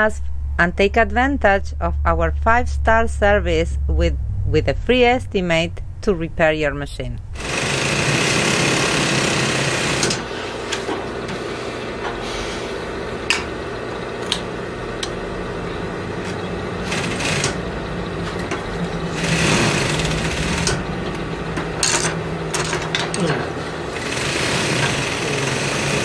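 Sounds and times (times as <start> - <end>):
sewing machine motor hum: 7.4 - 26.0.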